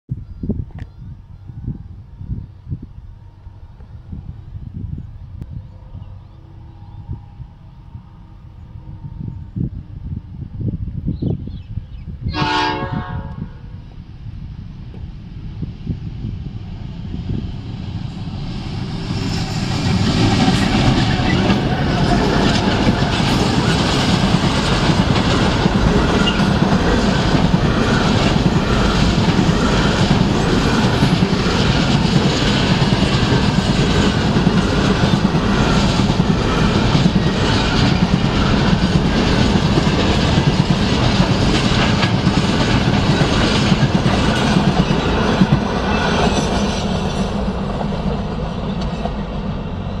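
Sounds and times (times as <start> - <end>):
freight train wheels rumbling: 0.4 - 50.0
clickety-clack over rail joints: 19.2 - 49.6.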